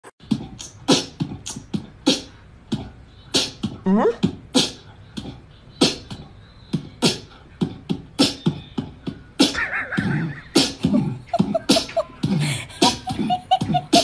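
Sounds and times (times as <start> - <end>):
beatbox mouth percussion: 0.1 - 14.0
pitched vocal glide: 9.9 - 14.0.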